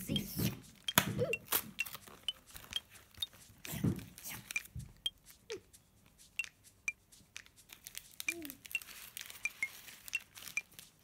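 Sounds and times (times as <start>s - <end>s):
plastic wrapper crinkling: 1.5s - 3.2s, 7.3s - 11.0s.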